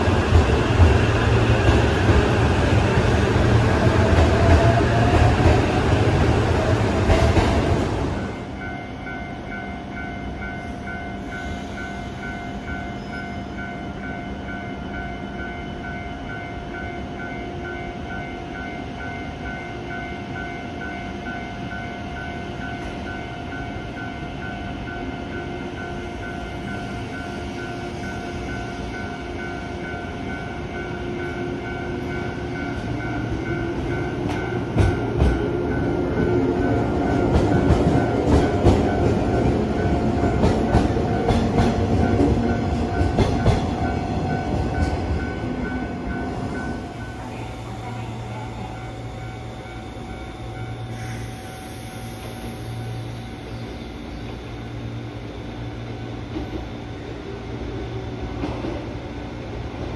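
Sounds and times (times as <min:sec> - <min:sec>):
electric train motors humming: 0:00.0 - 0:59.9
train wheels clacking over rail joints: 0:40.3 - 0:45.3.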